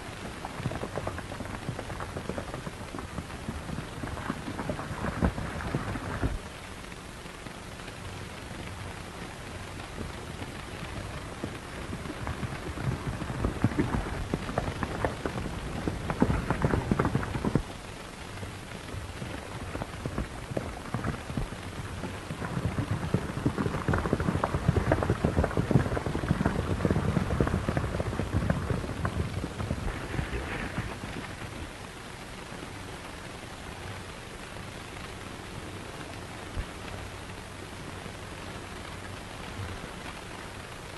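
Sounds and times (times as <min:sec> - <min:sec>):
horse hooves galloping on dirt: 0:00.0 - 0:06.6, 0:09.3 - 0:17.8, 0:18.4 - 0:31.8
steady hiss: 0:00.0 - 0:40.9.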